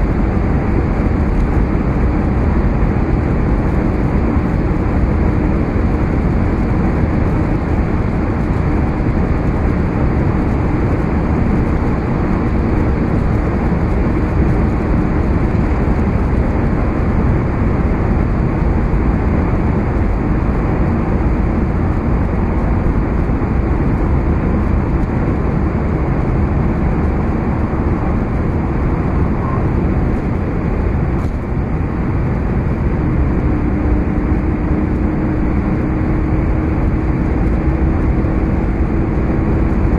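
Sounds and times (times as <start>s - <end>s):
low engine drone: 0.0s - 39.9s
wind rush: 0.0s - 39.9s.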